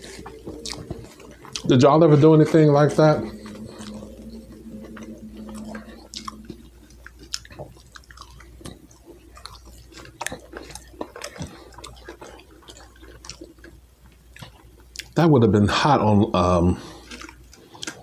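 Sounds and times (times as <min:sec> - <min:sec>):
man chewing french fries: 0:00.0 - 0:18.0.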